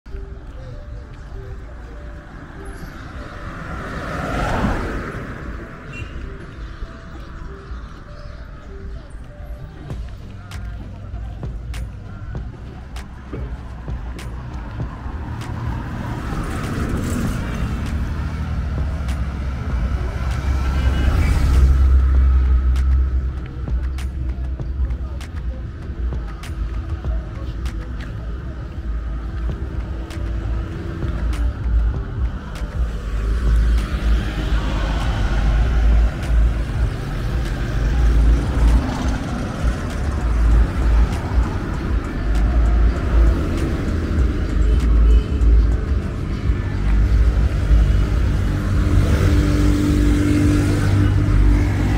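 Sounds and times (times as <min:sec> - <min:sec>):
vehicle engine approaching: 0:11.0 - 0:51.9.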